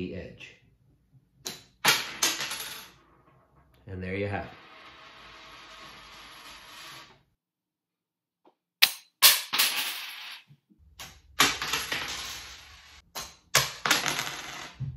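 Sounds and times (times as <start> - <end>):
ruler striking coins: 1.5 - 3.0, 4.6 - 7.1, 8.8 - 14.8
coins clattering on hardwood floor: 1.8 - 3.5, 4.6 - 7.1, 8.8 - 10.5, 11.4 - 13.0, 13.6 - 14.8.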